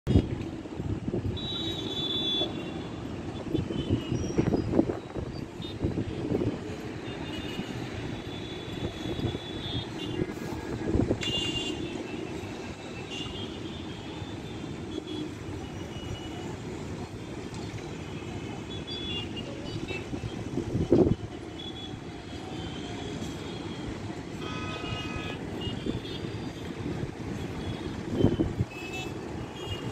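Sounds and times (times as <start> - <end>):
traffic rumble: 0.1 - 29.9
vehicle horns honking: 11.2 - 12.0, 24.3 - 26.4.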